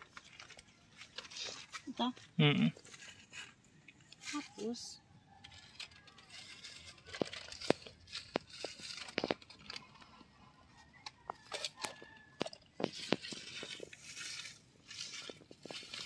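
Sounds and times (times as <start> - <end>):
dry grass and roots tearing: 0.0 - 4.6, 5.4 - 10.4, 11.0 - 16.0.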